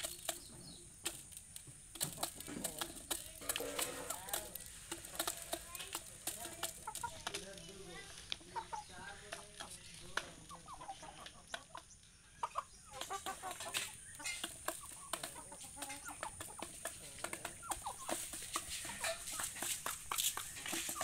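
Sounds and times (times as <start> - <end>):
beaks tapping on plastic: 0.0 - 7.7
chickens clucking: 0.0 - 21.0.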